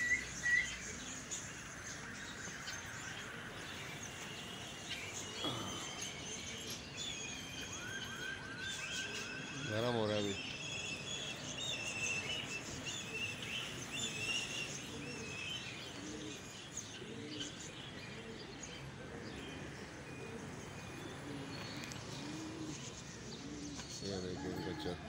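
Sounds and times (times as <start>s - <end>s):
outdoor background hum: 0.0s - 7.8s
birds chirping: 0.0s - 25.0s
pigeons cooing: 0.0s - 25.0s.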